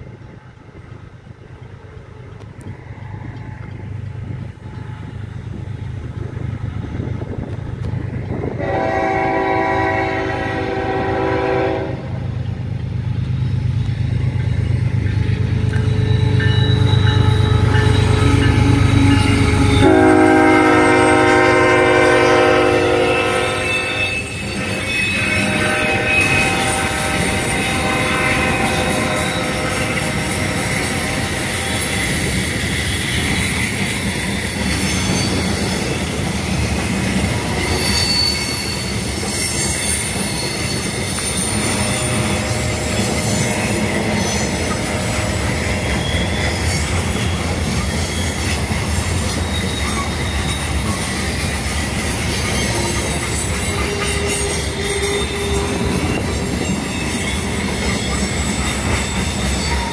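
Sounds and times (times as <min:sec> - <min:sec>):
train wheels rumbling on rail: 0:00.0 - 0:59.9
wheel flange squeal: 0:13.2 - 0:20.9, 0:23.0 - 0:59.9.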